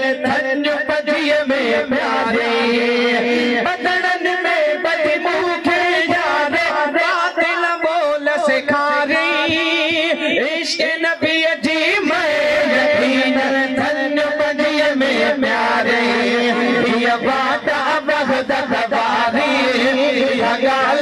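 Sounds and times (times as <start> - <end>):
men singing a hymn through microphones: 0.0 - 21.0.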